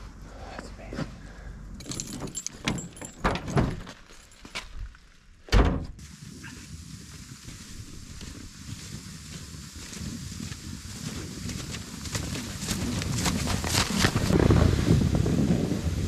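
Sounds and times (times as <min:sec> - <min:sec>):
faint outdoor hiss: 0:00.0 - 0:12.7
car keys jangling: 0:01.8 - 0:04.6.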